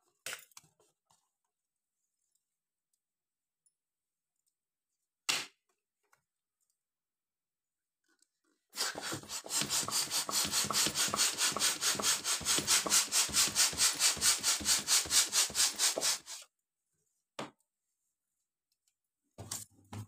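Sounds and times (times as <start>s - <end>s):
hand balloon pump strokes: 8.8s - 16.5s.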